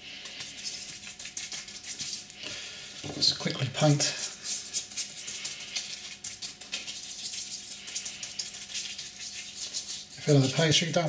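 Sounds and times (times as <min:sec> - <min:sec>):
pastry brush rustling on pastry: 0:00.0 - 0:11.0.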